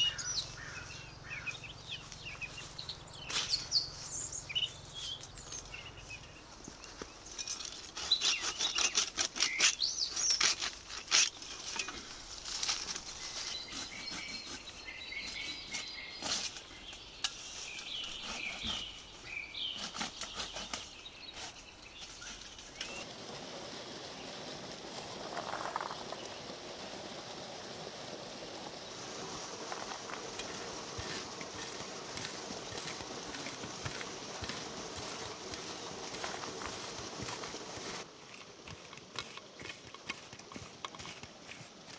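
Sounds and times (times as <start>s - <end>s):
birds chirping: 0.0s - 10.6s, 13.1s - 23.1s
grass rustling as cut by hand: 1.8s - 5.8s, 6.7s - 41.9s.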